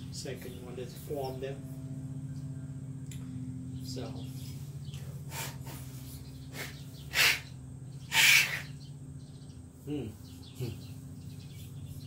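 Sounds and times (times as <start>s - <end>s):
steady low hum: 0.0s - 12.0s
puffs of breath through metal tube: 5.3s - 7.5s, 8.1s - 8.7s.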